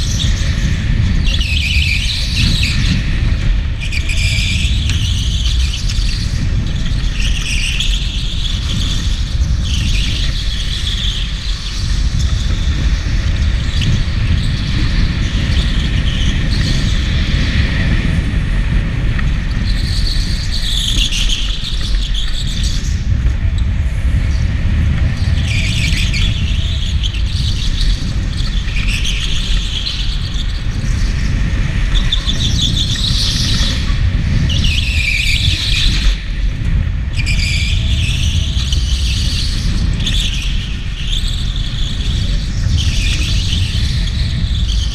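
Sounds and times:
go-kart low rumble: 0.0s - 44.9s
go-kart tyres squealing: 19.3s - 36.4s, 37.1s - 44.9s.

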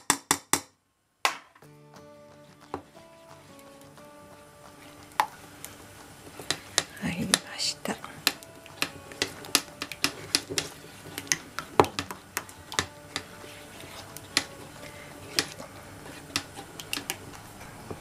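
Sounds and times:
utensil clicking against metal bowl: 4.6s - 17.4s.

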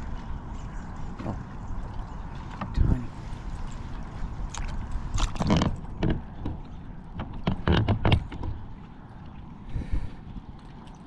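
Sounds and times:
water splashing around a kayak: 0.0s - 11.0s
steady low rumble: 8.2s - 11.0s.

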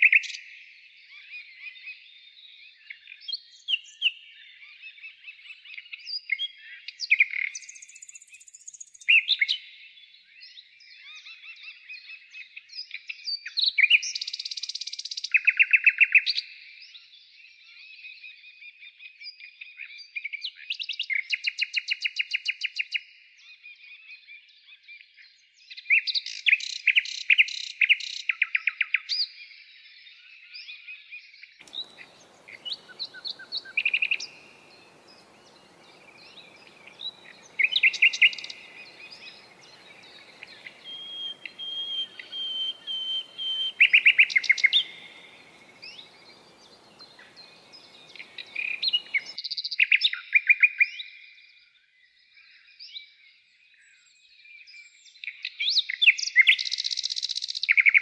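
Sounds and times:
faint background hiss: 31.6s - 49.4s
songbirds trilling and chirping: 31.6s - 49.6s.

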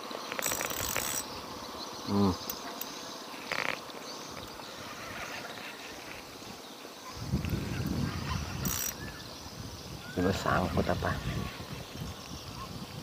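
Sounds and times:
spinning reel being worked: 0.3s - 1.3s, 8.5s - 9.1s.

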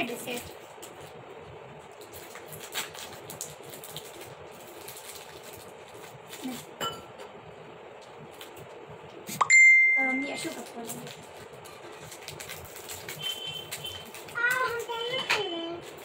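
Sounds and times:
plastic wrappers crinkling: 1.8s - 6.8s, 10.2s - 16.0s
clink on ceramic plate: 6.8s - 7.1s.

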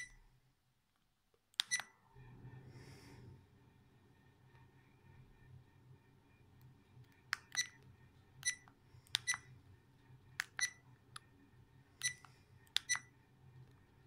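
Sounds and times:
camera beeps: 1.7s - 1.9s, 7.4s - 7.8s, 8.4s - 8.6s, 9.2s - 9.5s, 10.4s - 10.8s, 12.0s - 12.2s, 12.8s - 13.1s.

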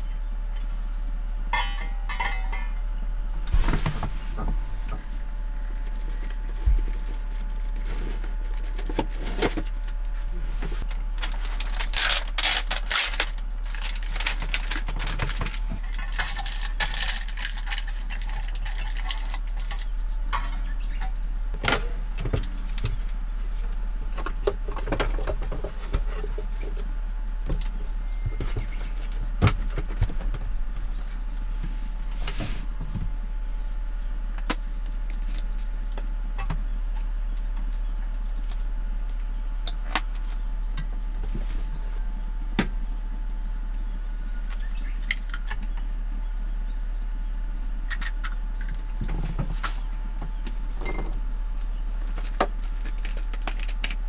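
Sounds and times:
steady low hum: 0.0s - 54.0s
food package rustling: 10.9s - 19.8s.

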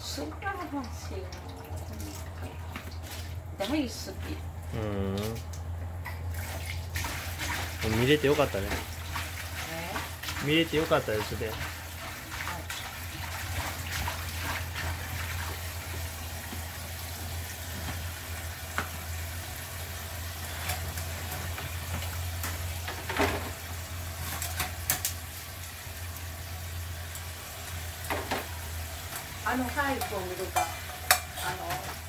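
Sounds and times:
water running: 0.0s - 5.6s, 6.2s - 23.6s
steady low hum: 0.0s - 17.4s.

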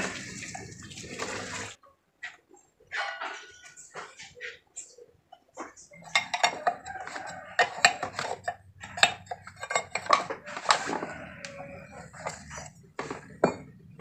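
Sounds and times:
metal tools clinking and knocking: 5.6s - 14.0s.

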